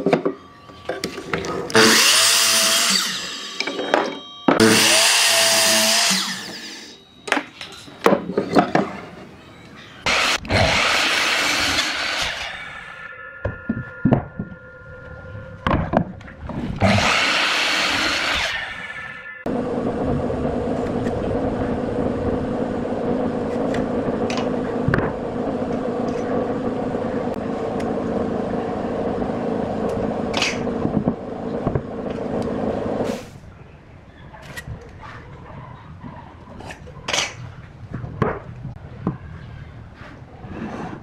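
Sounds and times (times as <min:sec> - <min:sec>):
miter saw cutting wood: 0:01.7 - 0:03.7, 0:04.6 - 0:07.0, 0:10.0 - 0:13.0, 0:16.8 - 0:33.0
steady machine hum: 0:18.8 - 0:33.0.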